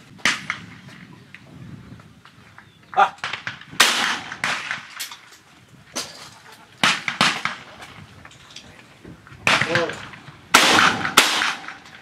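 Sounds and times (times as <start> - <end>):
shotgun shots with echo: 3.2 - 5.0, 6.8 - 7.7, 9.4 - 12.0.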